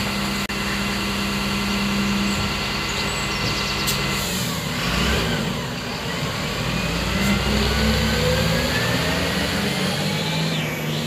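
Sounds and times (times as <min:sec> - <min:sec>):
diesel truck engine accelerating: 0:00.0 - 0:11.0.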